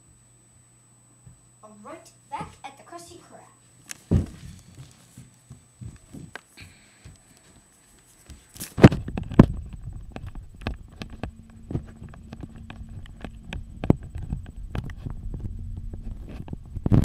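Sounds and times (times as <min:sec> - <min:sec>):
microphone handling thumps: 0:04.0 - 0:06.4, 0:08.7 - 0:17.0
low rumble: 0:09.0 - 0:17.0.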